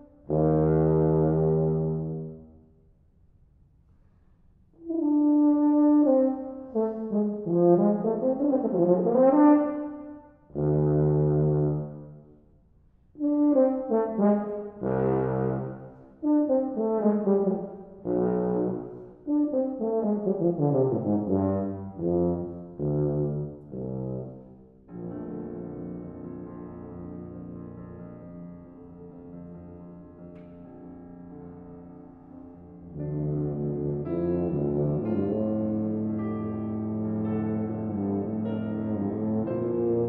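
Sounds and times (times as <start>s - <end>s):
tuba playing: 0.0s - 2.8s, 4.8s - 12.5s, 13.2s - 30.2s, 32.3s - 40.0s.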